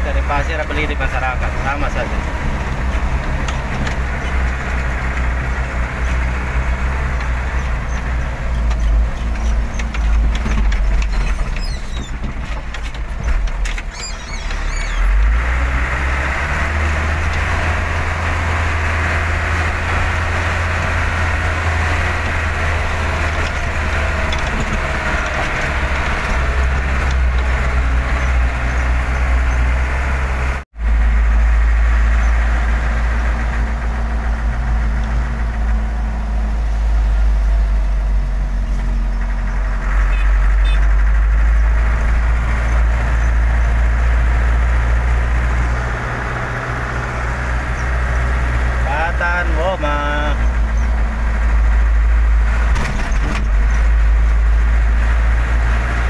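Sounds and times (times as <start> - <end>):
truck engine rumbling: 0.0 - 56.0
rattles and clicks: 0.8 - 15.2, 22.0 - 29.7, 50.3 - 56.0.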